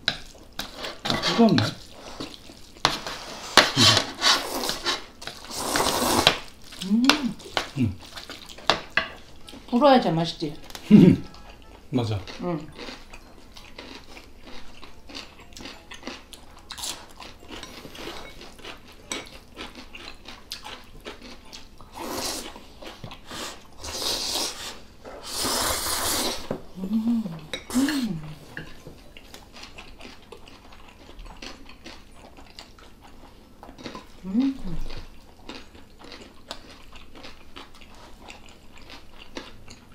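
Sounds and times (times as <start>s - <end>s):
chewing: 0.1s - 9.8s, 10.6s - 24.8s, 27.4s - 39.9s
loud slurping of noodles: 3.3s - 6.4s, 21.9s - 22.5s, 23.3s - 26.5s
person humming: 6.8s - 8.0s, 26.8s - 28.5s, 34.2s - 34.9s
chopsticks and spoons clicking on bowls: 17.2s - 21.7s.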